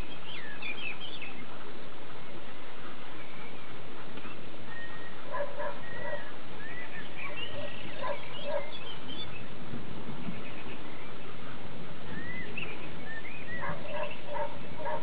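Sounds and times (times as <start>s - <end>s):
birds chirping: 0.0s - 15.0s
dog barking: 5.3s - 6.3s, 7.2s - 8.8s, 13.6s - 15.0s.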